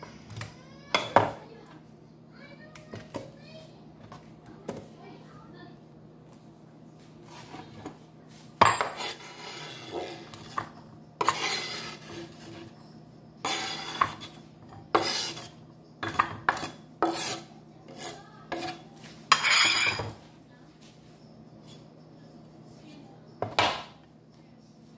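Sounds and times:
knife scraping cutting board: 7.2s - 8.0s, 8.6s - 12.8s, 13.4s - 20.2s.

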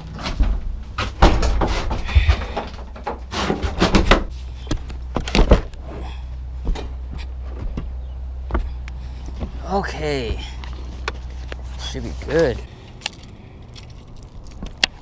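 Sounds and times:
plastic toilet door rattling: 0.4s - 4.3s.

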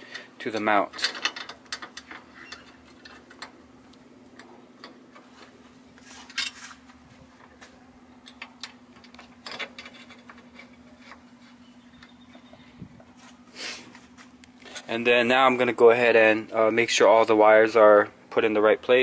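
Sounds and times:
steady low hum: 0.0s - 19.0s
wrench clicking on metal bolts: 0.9s - 3.5s.

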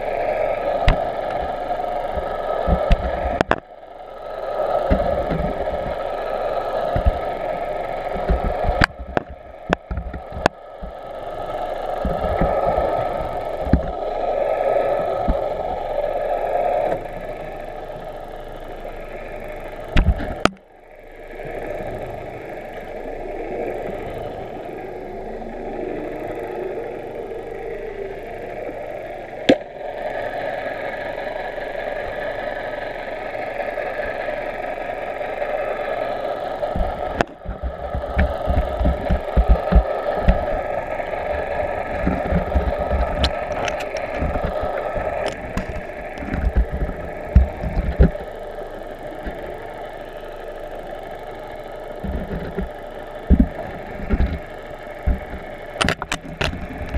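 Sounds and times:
underwater water hiss: 0.0s - 18.1s
muffled mechanical drone: 0.0s - 56.9s.

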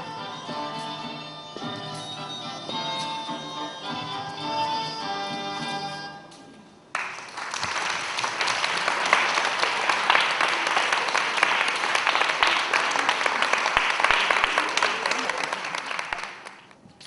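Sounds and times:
audience applauding: 6.9s - 16.7s.

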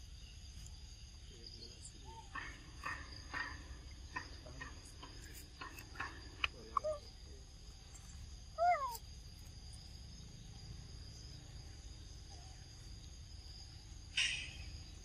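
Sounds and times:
high insect drone: 0.0s - 15.0s
monkey call: 1.7s - 7.3s, 8.6s - 9.0s, 14.1s - 15.0s.

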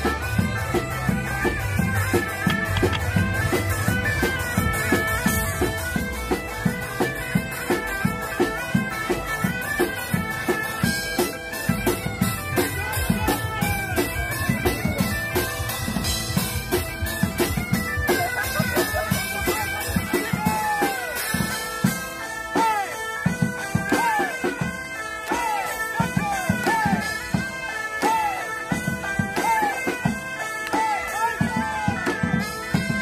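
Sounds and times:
drum beat: 0.0s - 24.3s
bagpipe melody with drones: 0.0s - 33.0s.

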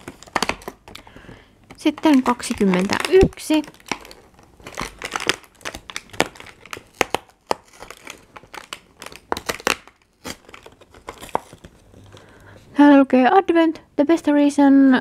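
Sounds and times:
cardboard tearing and crinkling: 0.0s - 1.1s, 1.7s - 12.4s.

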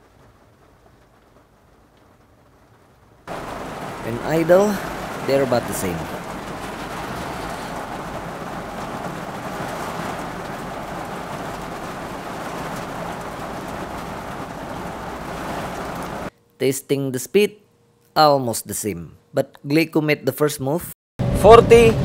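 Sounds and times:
rain on car windshield and roof: 0.0s - 16.3s.

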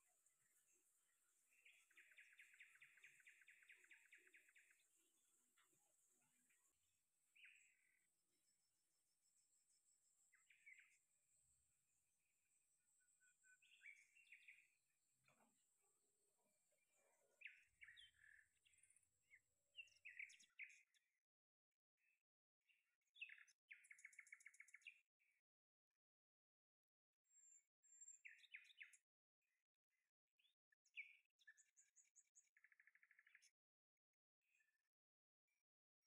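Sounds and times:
small birds chirping: 0.0s - 21.1s, 22.0s - 25.4s, 27.3s - 29.1s, 30.4s - 33.6s
bird trill: 1.5s - 4.9s.

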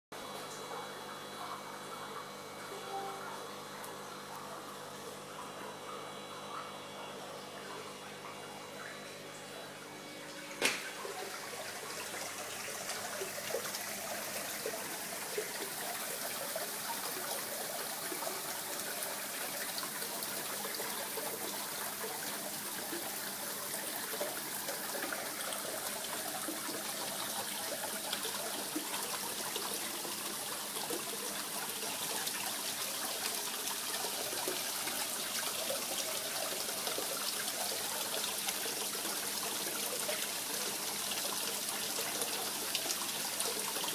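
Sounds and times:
water trickling into pond: 10.6s - 43.9s.

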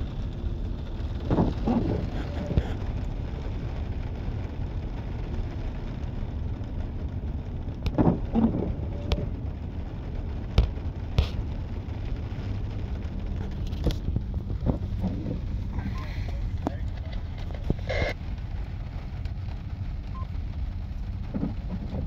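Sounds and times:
freight train rumbling: 0.0s - 22.0s.

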